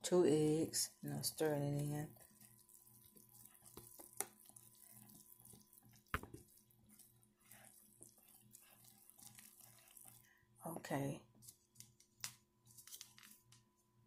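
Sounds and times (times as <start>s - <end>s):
whisk swishing in batter: 0.7s - 10.4s.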